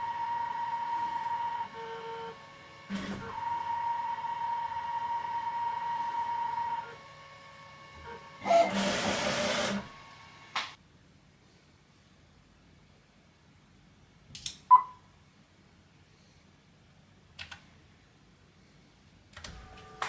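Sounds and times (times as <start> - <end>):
router motor whine: 0.0 - 10.6.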